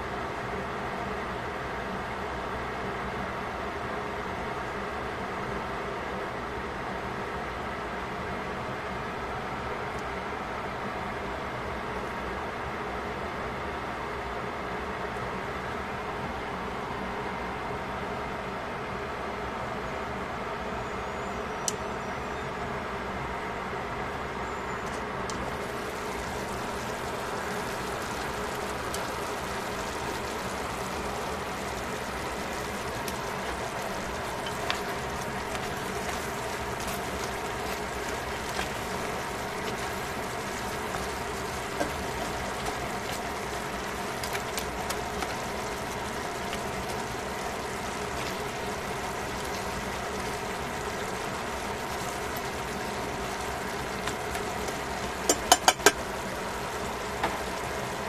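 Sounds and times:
sauce simmering hiss: 0:24.8 - 0:58.0
chopsticks clicking on pot: 0:55.3 - 0:56.0.

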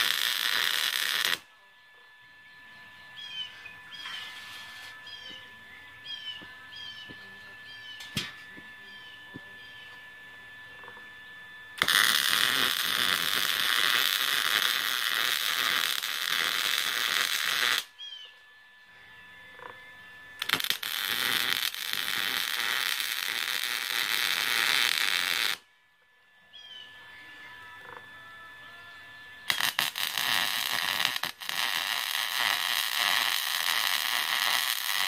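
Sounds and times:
arc welding crackling hiss: 0:00.0 - 0:01.5, 0:11.7 - 0:17.9, 0:20.4 - 0:25.6, 0:29.4 - 0:35.0.

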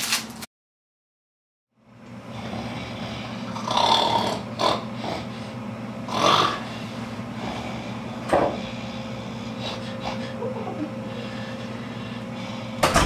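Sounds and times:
low electrical hum: 0:01.8 - 0:13.0
person snoring: 0:02.3 - 0:10.4.

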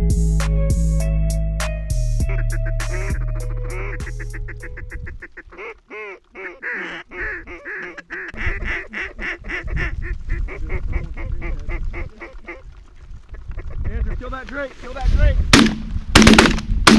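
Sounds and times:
duck call quacking: 0:02.3 - 0:12.6.

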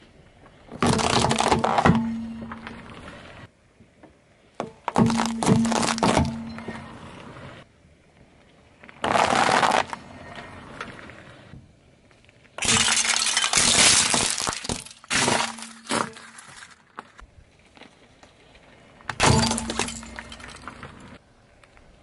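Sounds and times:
car tyre crushing brittle objects: 0:00.6 - 0:03.0, 0:04.6 - 0:06.9, 0:08.8 - 0:11.1, 0:12.2 - 0:18.0, 0:19.0 - 0:21.7.

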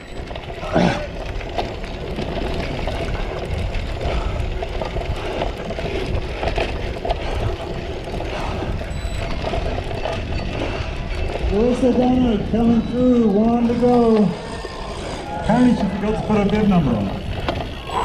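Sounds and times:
bike frame rattling and clicking: 0:00.0 - 0:18.0
wind rumble on microphone: 0:00.0 - 0:18.0.

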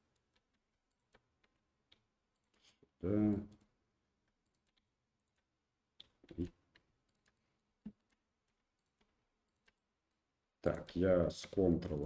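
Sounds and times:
mouse and keyboard clicks: 0:04.2 - 0:09.8.

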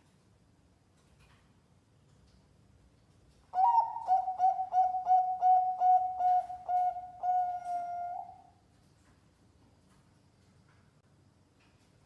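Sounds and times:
dove cooing: 0:03.6 - 0:08.5.

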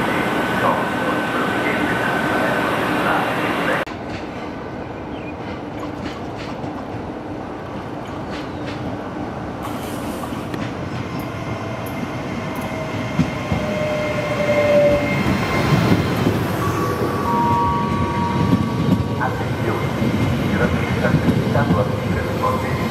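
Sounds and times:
train wheel squeals: 0:11.9 - 0:19.1.

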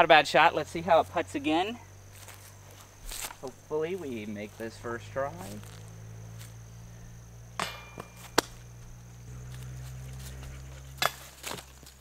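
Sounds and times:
steady low hum: 0:00.0 - 0:12.0
golf disc hitting chain basket: 0:07.4 - 0:12.0.

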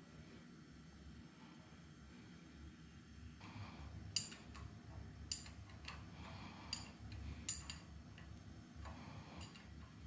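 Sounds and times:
wrench clinking on metal fitting: 0:04.2 - 0:10.0.

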